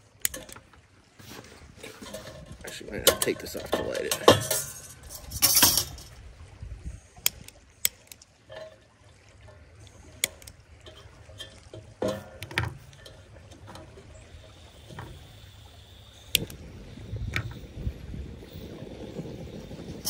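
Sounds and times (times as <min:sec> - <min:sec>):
creek water running: 0:00.0 - 0:20.0
clicks and knocks of handling: 0:00.2 - 0:06.1, 0:10.2 - 0:14.0
metal guard clattering: 0:01.8 - 0:06.2.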